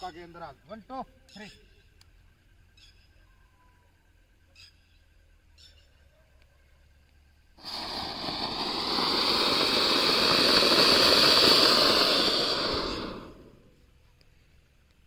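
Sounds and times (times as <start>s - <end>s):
firework fountain hissing: 7.5s - 14.9s.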